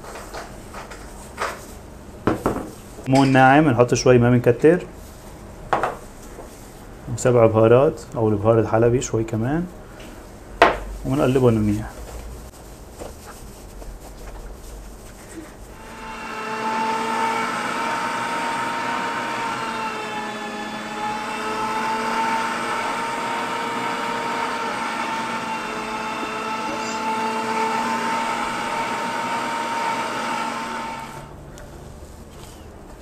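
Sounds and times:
electric meat grinder whine: 15.7s - 31.4s.

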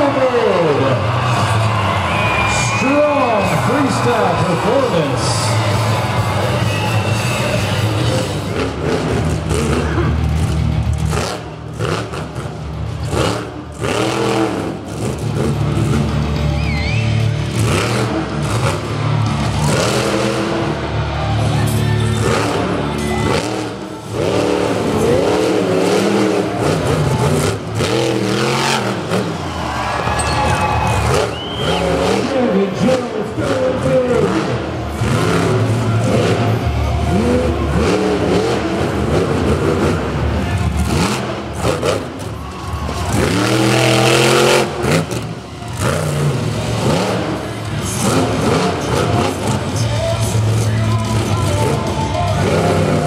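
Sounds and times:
monster truck engine revving: 0.0s - 53.0s.

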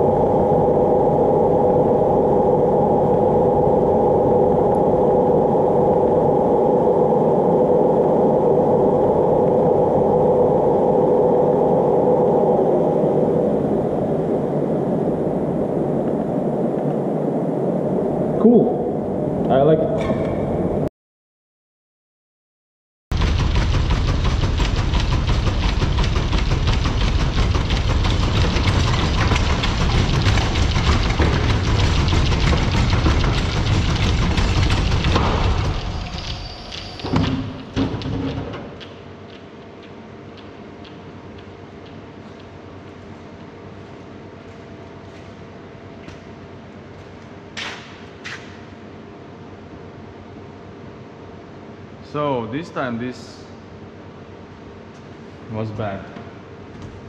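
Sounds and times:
washing machine rushing noise: 0.0s - 16.5s, 23.1s - 39.0s
washing machine motor whine: 0.0s - 19.9s, 23.1s - 39.0s
drum knocking and rattling: 23.1s - 36.3s.

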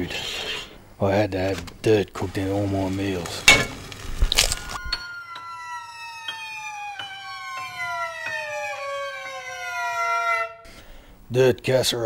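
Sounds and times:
whistling tone sliding downward: 4.6s - 10.6s.

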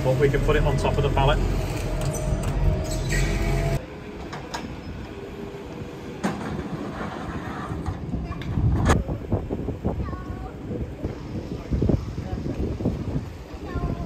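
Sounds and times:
telehandler engine running: 0.0s - 8.2s.

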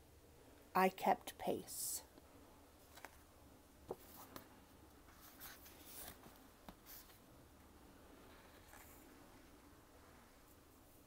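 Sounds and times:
paper rustling: 3.9s - 7.2s.

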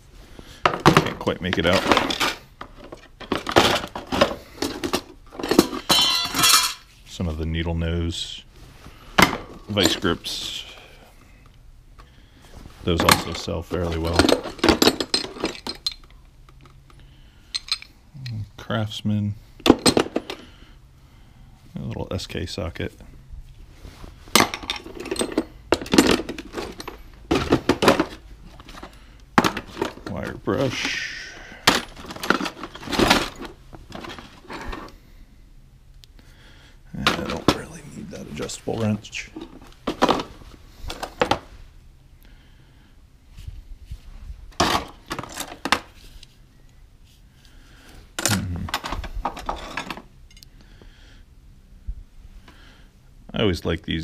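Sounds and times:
metal tools clattering into bins: 0.6s - 6.9s, 9.2s - 10.7s, 12.9s - 16.8s, 17.5s - 18.0s, 19.6s - 20.5s, 24.3s - 31.0s, 31.6s - 34.9s, 39.1s - 40.3s, 44.6s - 45.9s, 48.2s - 50.4s.

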